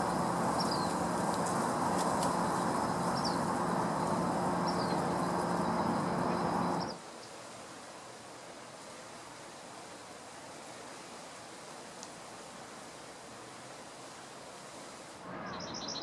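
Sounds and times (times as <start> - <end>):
mechanical rumble with droning hum: 0.0 - 7.0
quiet hiss: 0.0 - 16.0
small bird chirping: 0.6 - 1.0, 2.3 - 7.0, 15.4 - 16.0.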